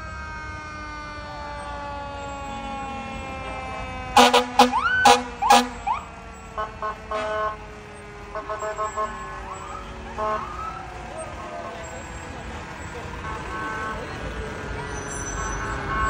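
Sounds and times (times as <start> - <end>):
fire engine siren: 0.0 - 16.0
air horn blasts: 3.6 - 6.0, 6.6 - 7.7, 8.3 - 10.7, 13.2 - 14.2, 15.2 - 16.0.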